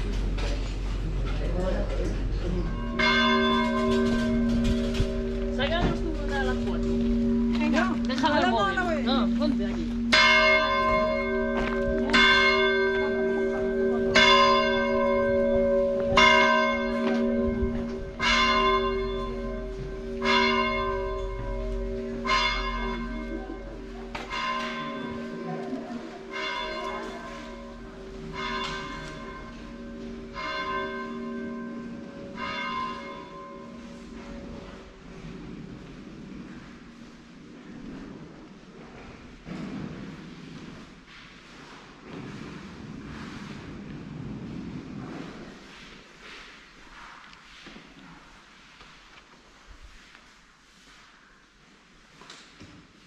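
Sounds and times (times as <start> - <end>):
church bell tolling: 0.0 - 38.2.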